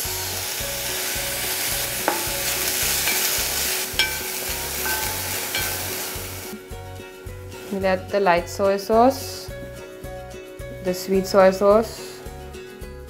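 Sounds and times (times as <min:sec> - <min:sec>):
sprouts sizzling in hot oil: 0:00.0 - 0:06.6.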